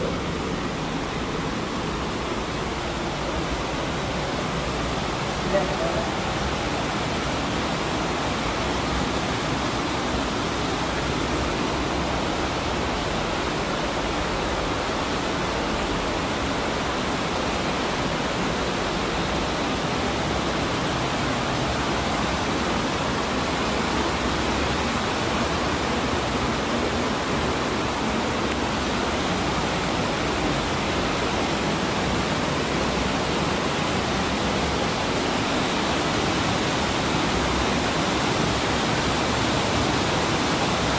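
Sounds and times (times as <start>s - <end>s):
waterfall rushing: 0.0s - 40.9s.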